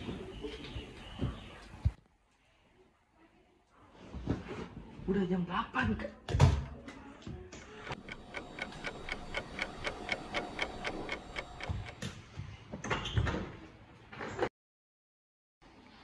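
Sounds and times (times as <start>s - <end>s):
clock ticking fast: 7.9s - 12.1s.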